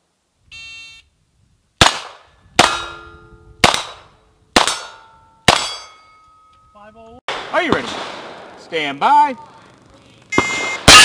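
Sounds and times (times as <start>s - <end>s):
handgun shots: 4.6s - 5.9s
steel targets ringing: 4.6s - 6.9s.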